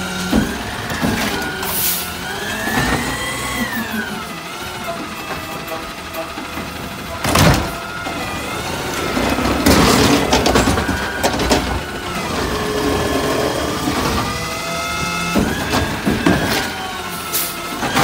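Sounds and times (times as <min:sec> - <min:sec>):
garbage truck engine: 0:00.0 - 0:18.0
hydraulic whine: 0:00.0 - 0:18.0
trash clattering into hopper: 0:06.5 - 0:18.0.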